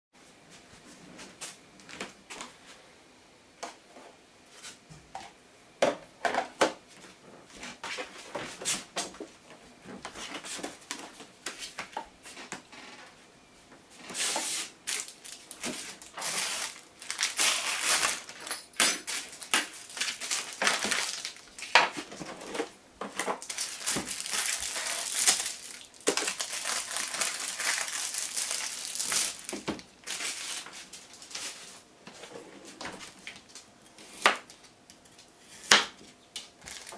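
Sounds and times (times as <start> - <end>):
plastic packaging crinkling: 14.8 - 31.8, 36.4 - 36.9.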